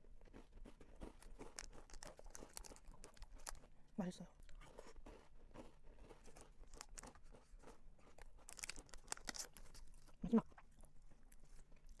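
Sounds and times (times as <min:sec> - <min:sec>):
plastic wrapper crinkling: 0:08.4 - 0:10.1.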